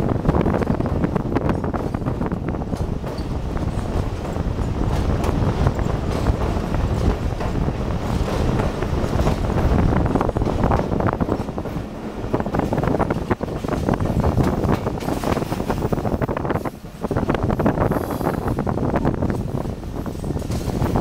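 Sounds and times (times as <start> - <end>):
rattling clicks of coach and wheels: 0.0 - 21.0
train rumble: 0.0 - 21.0
wind rushing over microphone: 0.0 - 21.0.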